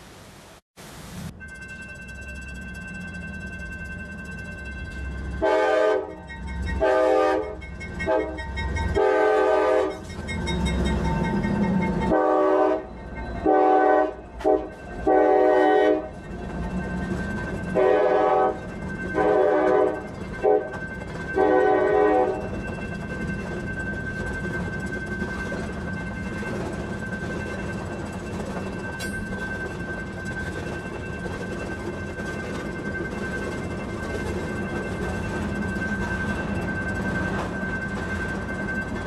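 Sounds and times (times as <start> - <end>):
locomotive air horn: 5.4 - 6.2, 6.8 - 8.4, 9.0 - 10.0, 12.1 - 16.1, 17.8 - 18.6, 19.2 - 20.7, 21.4 - 22.4.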